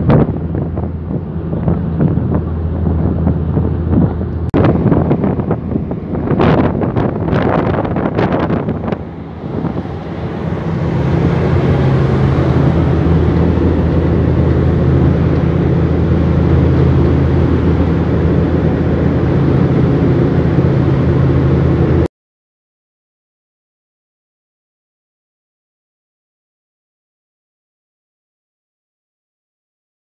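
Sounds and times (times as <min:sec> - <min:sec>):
ferry engines droning: 0:00.0 - 0:22.1.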